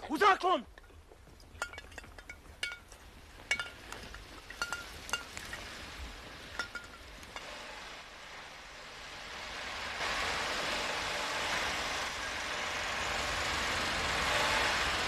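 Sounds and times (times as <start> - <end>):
metallic clinks and rattles: 0.8 - 5.8, 6.5 - 7.5
approaching truck rushing: 7.6 - 15.0.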